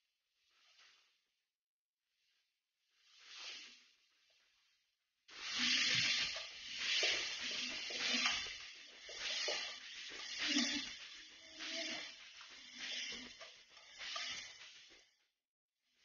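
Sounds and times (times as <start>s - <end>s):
spatula stirring and scraping: 5.4s - 14.9s.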